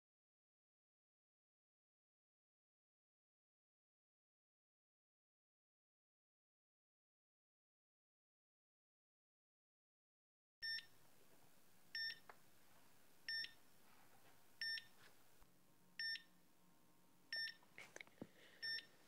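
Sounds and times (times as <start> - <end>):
heart monitor beeping: 10.6 - 11.0, 12.0 - 12.3, 13.3 - 13.6, 14.6 - 15.0, 16.0 - 16.3, 17.3 - 17.7, 18.6 - 19.0.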